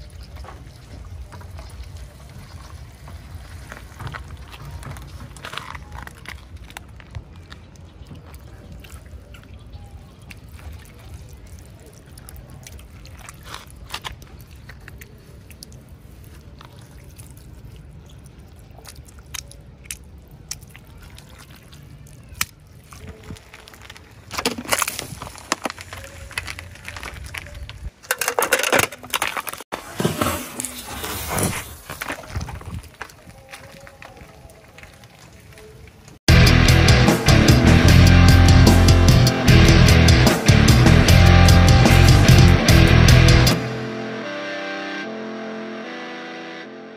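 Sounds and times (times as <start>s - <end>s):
plastic bottles crackling and popping: 0.0s - 9.0s, 19.0s - 30.8s
jelly squelching by hand: 3.8s - 27.9s.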